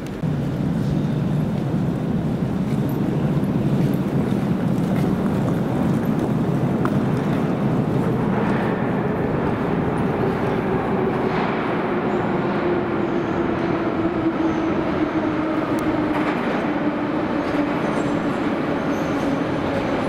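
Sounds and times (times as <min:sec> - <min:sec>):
train rumbling in tunnel: 0:00.0 - 0:20.0.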